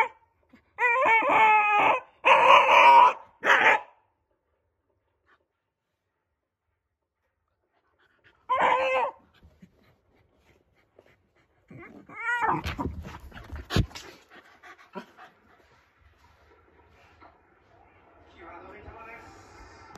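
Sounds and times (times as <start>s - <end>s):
dog yelping barks: 0.8s - 4.0s, 8.5s - 9.2s
paws scratching and knocking sofa: 9.4s - 16.2s.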